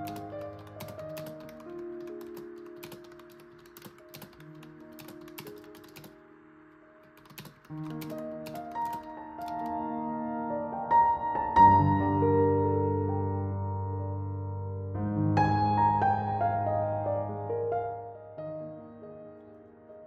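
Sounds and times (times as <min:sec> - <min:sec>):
typing on a keyboard: 0:00.0 - 0:06.2, 0:07.0 - 0:09.8
soft background music: 0:00.0 - 0:20.0.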